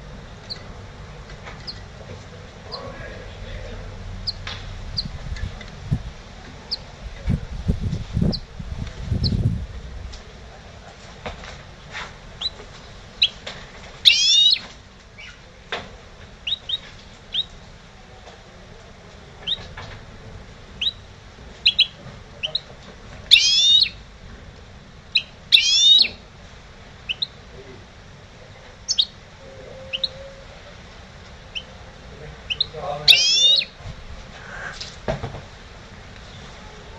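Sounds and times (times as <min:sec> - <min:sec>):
bird chirping: 0:00.4 - 0:00.7, 0:01.4 - 0:01.9, 0:02.6 - 0:05.7, 0:06.6 - 0:06.9, 0:08.2 - 0:08.5, 0:09.1 - 0:09.5, 0:12.4 - 0:15.5, 0:16.4 - 0:17.6, 0:19.4 - 0:19.7, 0:20.8 - 0:24.0, 0:25.1 - 0:26.2, 0:27.0 - 0:27.4, 0:28.8 - 0:30.4, 0:31.5 - 0:31.8, 0:32.4 - 0:33.8
rapid buzzy bird song phrases: 0:02.4 - 0:05.5, 0:06.7 - 0:09.6, 0:20.8 - 0:22.7, 0:23.3 - 0:24.0, 0:25.1 - 0:26.2, 0:27.0 - 0:27.9, 0:28.8 - 0:30.2, 0:31.4 - 0:33.8.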